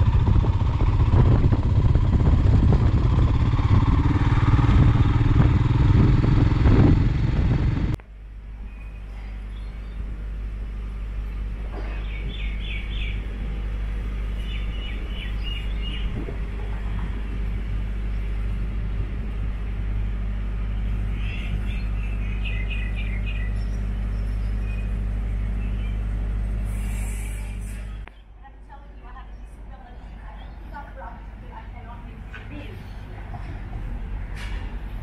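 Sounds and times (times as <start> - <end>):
low outdoor rumble: 0.0 - 35.0
birds chirping: 8.6 - 34.9.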